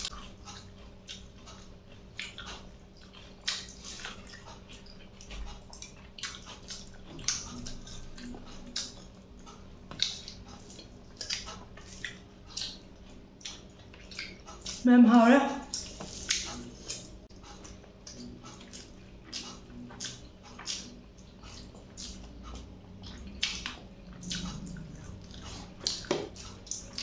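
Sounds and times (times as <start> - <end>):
wet chewing and lip smacks: 0.0 - 14.8, 15.7 - 27.0.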